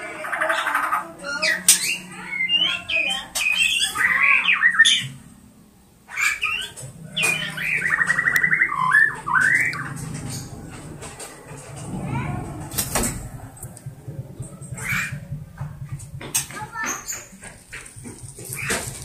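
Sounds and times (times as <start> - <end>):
bird singing whistles and squawks: 0.5 - 5.2, 6.1 - 10.5.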